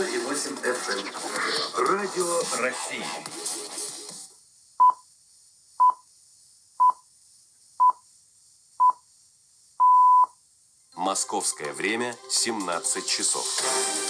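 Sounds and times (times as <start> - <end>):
radio reception hiss: 0.0 - 14.0
radio time signal beeps: 9.8 - 10.3.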